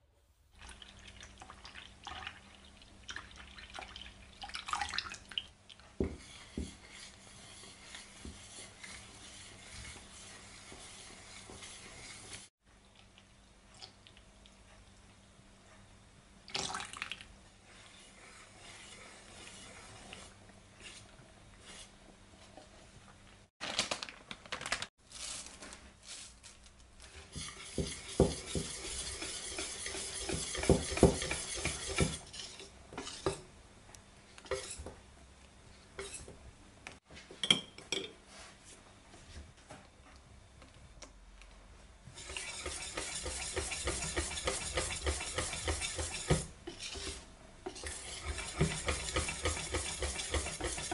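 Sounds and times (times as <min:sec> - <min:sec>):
whisk beating batter in metal bowl: 0:06.0 - 0:12.5, 0:17.7 - 0:21.0, 0:27.2 - 0:33.4, 0:34.5 - 0:34.9, 0:42.1 - 0:50.9.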